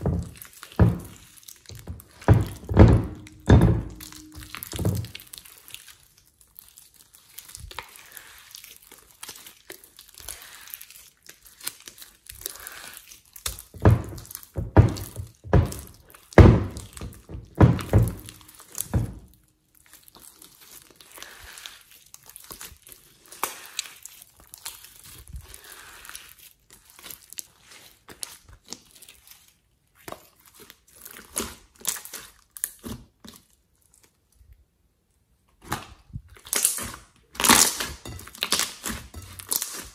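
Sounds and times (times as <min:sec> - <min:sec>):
slime squelching and crackling: 0:00.0 - 0:02.6, 0:04.3 - 0:34.4
thumps: 0:00.0 - 0:05.2, 0:13.8 - 0:19.3.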